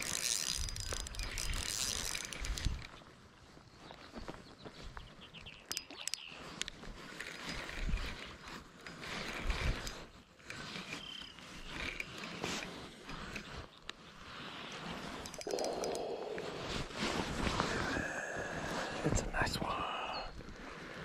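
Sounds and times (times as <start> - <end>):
fishing reel cranking: 0.0 - 2.9, 7.1 - 13.5, 14.8 - 16.6
rod handling clicks and knocks: 0.0 - 3.1, 5.4 - 14.1, 14.8 - 16.5.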